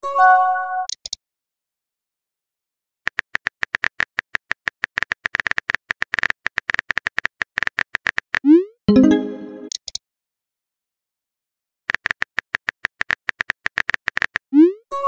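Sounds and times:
keyboard typing clicks: 0.9s - 1.2s.

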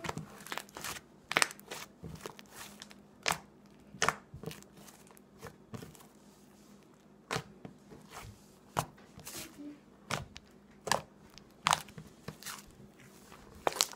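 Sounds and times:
slime squished by hand: 0.0s - 6.3s, 6.9s - 13.9s.

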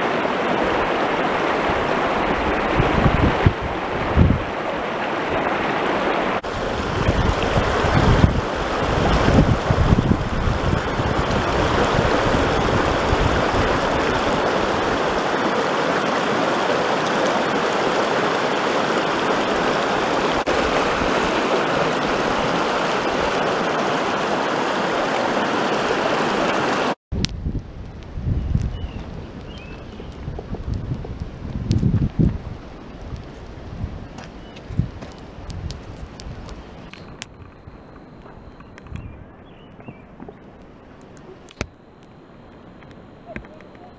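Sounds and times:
wind buffeting microphone: 0.0s - 15.4s, 27.1s - 41.7s
river rushing over rapids: 0.0s - 27.0s.

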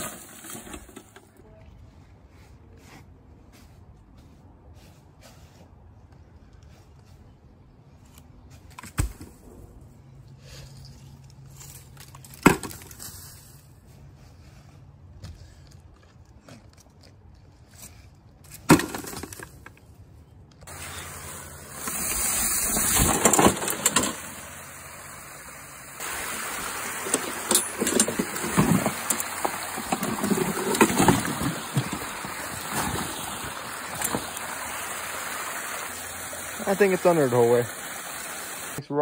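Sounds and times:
knocks and splashes of mower: 0.0s - 1.4s, 11.6s - 13.1s, 18.6s - 19.7s, 20.7s - 38.8s
creek water rushing: 20.7s - 38.8s.

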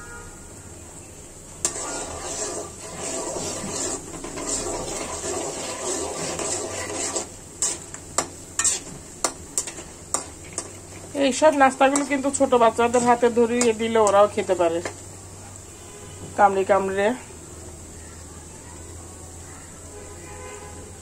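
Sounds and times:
utensil stirring snacks in hot oil: 1.0s - 15.8s.

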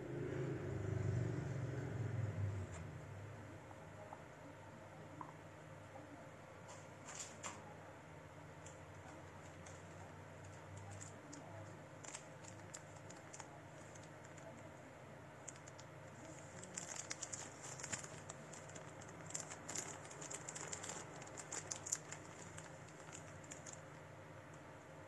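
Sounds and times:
packaging rustling and crinkling: 10.4s - 14.6s, 15.4s - 23.9s.

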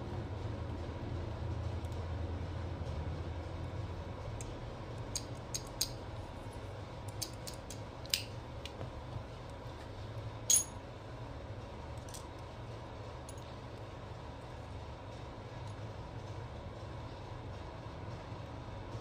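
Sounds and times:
low background hum: 0.0s - 19.0s
metallic clink with ring: 10.5s - 10.8s.

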